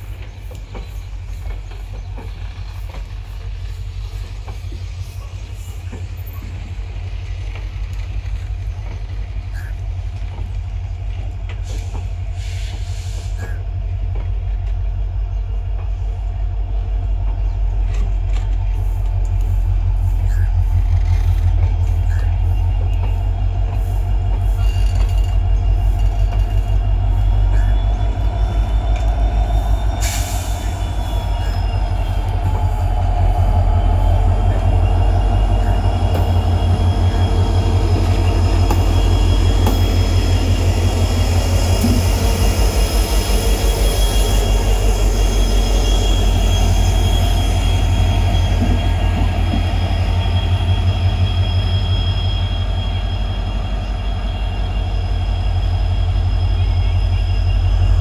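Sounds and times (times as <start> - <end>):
diesel locomotive engine throbbing: 0.0 - 58.0
wheels squealing on rails: 0.0 - 58.0.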